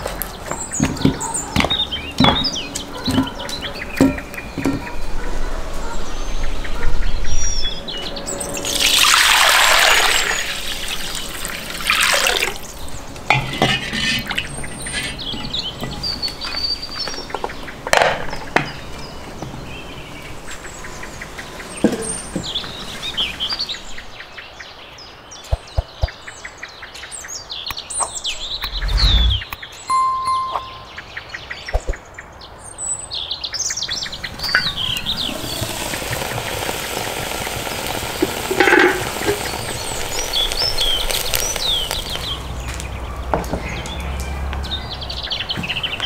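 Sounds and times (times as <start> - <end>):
birds chirping: 14.0 - 36.8
rush of noise: 28.3 - 29.5.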